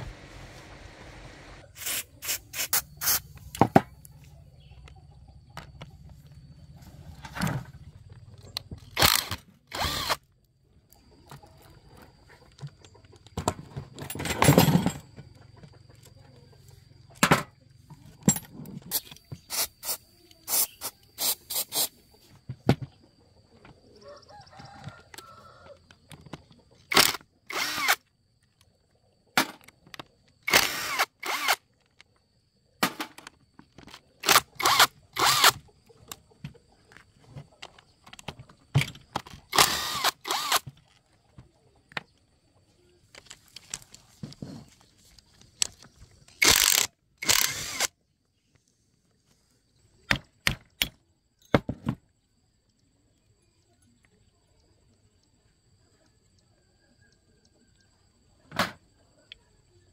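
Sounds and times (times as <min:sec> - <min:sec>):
cordless impact driver bursts: 0:09.0 - 0:10.2, 0:26.9 - 0:28.0, 0:30.5 - 0:31.6, 0:34.2 - 0:35.6, 0:39.5 - 0:40.6, 0:46.4 - 0:47.9.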